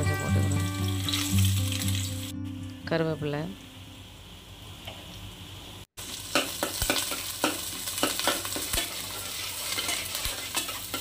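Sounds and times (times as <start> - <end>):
food sizzling in hot oil: 0.0 - 2.3, 3.4 - 11.0
metal spatula scraping a pot: 6.4 - 11.0.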